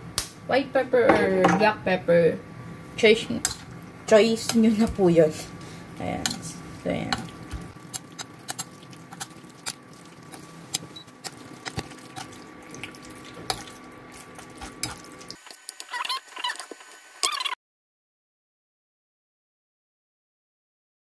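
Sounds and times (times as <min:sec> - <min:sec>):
meat squelching: 0:07.1 - 0:16.5.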